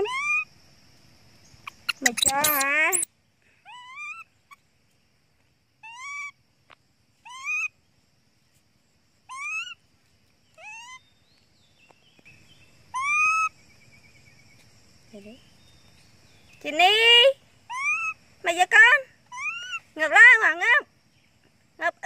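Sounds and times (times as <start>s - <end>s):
baby monkey crying: 0.0s - 0.5s, 1.6s - 4.6s, 5.8s - 6.4s, 7.2s - 7.7s, 9.3s - 9.8s, 10.6s - 11.0s, 12.9s - 13.6s, 17.7s - 20.4s.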